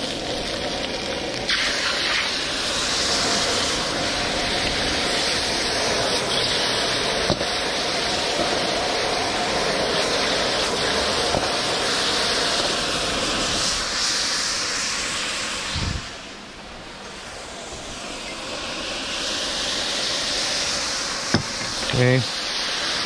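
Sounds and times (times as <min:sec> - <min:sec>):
food sizzling in a wok: 0:00.0 - 0:23.0
gas burner hissing: 0:00.0 - 0:23.0
thump: 0:21.3 - 0:21.7.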